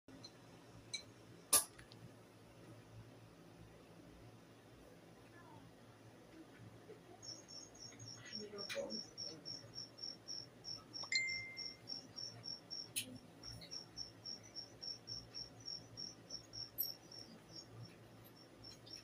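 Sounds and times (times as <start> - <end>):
insect chirping: 7.1 - 19.0.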